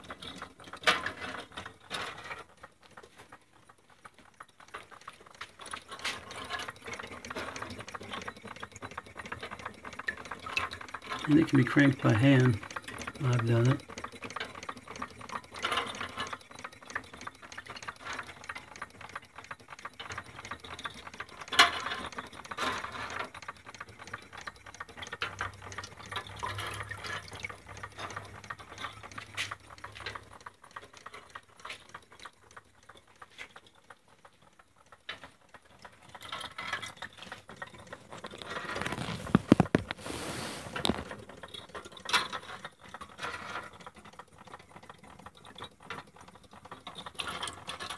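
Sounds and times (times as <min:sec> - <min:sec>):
toy buckets clattering through gears: 0:00.0 - 0:40.0, 0:40.7 - 0:47.9
water splashing and trickling: 0:24.1 - 0:30.3.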